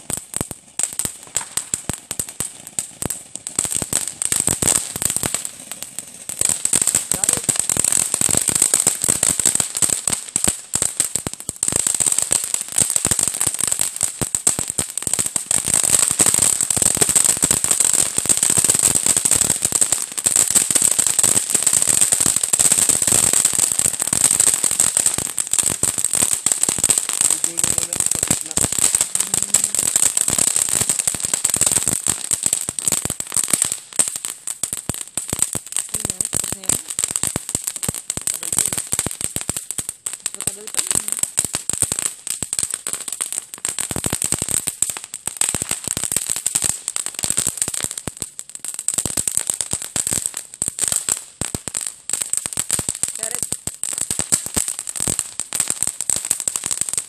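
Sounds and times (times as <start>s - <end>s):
firework spark hiss: 0.0s - 13.3s, 21.2s - 34.4s, 35.9s - 42.9s, 52.4s - 56.8s
firework crackling: 0.0s - 57.0s.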